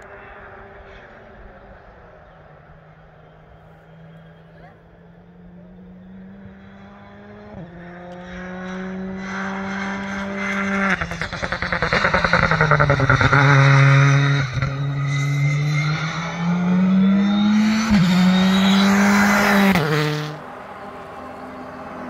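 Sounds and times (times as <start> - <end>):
rally car engine revving: 0.0 - 22.0
engine crackling: 5.5 - 22.0.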